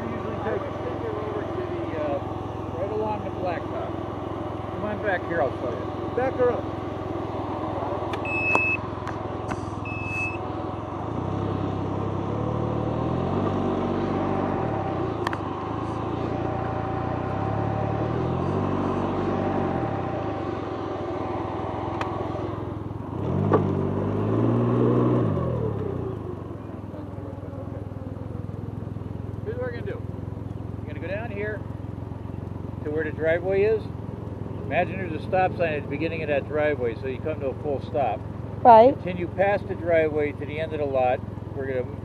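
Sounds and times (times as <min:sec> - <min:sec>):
three-wheeler engine revving: 0:00.0 - 0:42.0
short electronic beeps: 0:08.2 - 0:08.8, 0:09.8 - 0:10.4.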